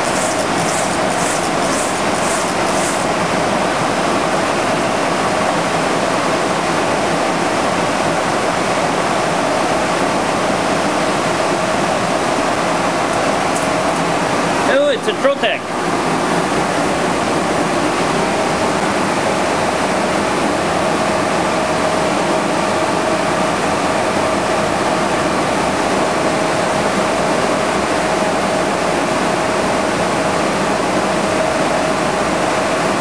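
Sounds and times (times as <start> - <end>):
mid-pitched hum: 0.0 - 22.0
ventilation blower rushing air: 0.0 - 33.0.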